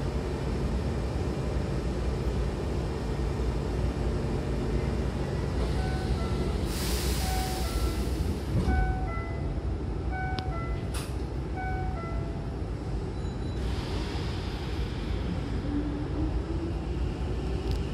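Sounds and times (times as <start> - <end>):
electric train humming: 0.0 - 13.1
air hiss of doors closing: 5.6 - 8.6, 13.6 - 15.3
electronic tone melody: 8.7 - 9.5, 11.6 - 12.4.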